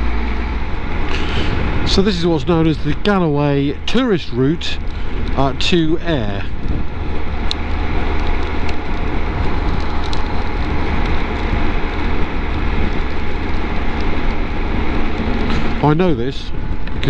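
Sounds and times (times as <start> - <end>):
motorcycle engine drone: 0.0 - 17.0
wind rushing: 0.0 - 17.0
tyre hiss on wet road: 1.1 - 1.7.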